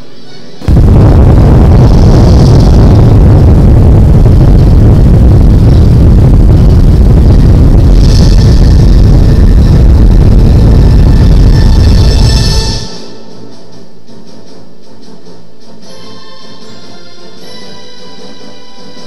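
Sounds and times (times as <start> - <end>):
explosion low rumble: 0.6 - 13.0.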